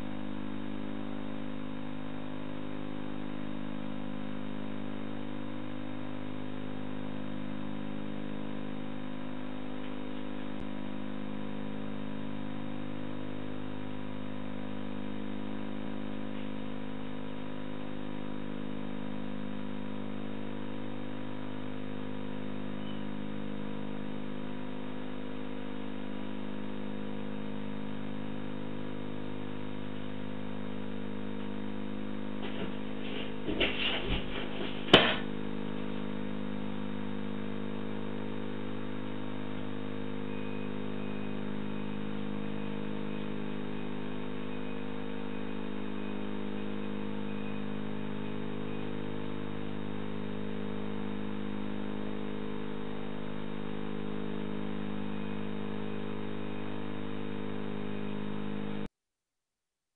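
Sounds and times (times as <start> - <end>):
steady electrical hum: 0.0 - 58.9
knocks and rattles: 32.4 - 35.3.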